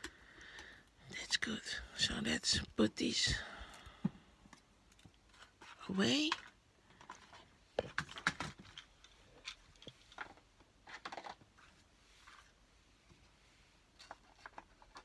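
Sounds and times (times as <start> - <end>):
craft supplies clicking and rustling: 4.9 - 11.7, 14.0 - 15.0.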